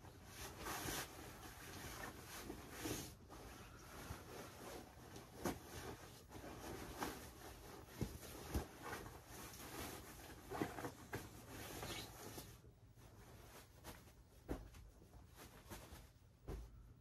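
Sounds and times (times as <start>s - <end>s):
fabric rustling: 0.0s - 17.0s
soft bumps and pats: 13.1s - 17.0s.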